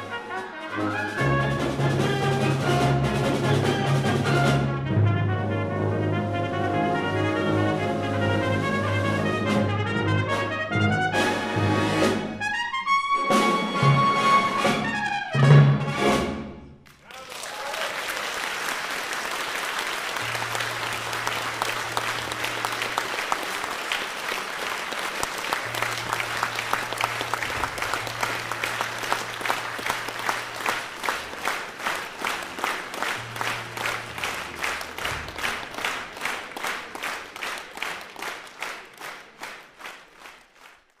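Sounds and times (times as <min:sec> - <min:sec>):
audience applauding: 0:00.0 - 0:02.9, 0:16.8 - 0:41.0
rhythmic clapping in unison: 0:00.0 - 0:04.5, 0:16.8 - 0:41.0.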